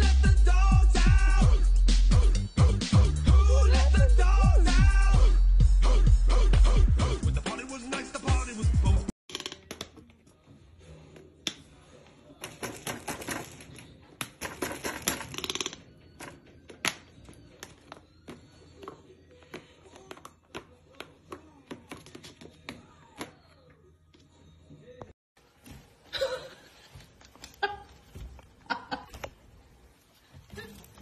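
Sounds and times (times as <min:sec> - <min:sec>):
music: 0:00.0 - 0:09.2, 0:12.4 - 0:20.5
bill clattering among plastic toys: 0:12.4 - 0:18.6.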